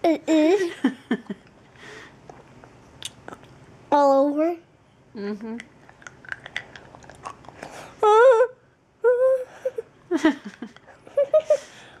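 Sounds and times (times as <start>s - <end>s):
girl whimpering: 8.0s - 9.9s.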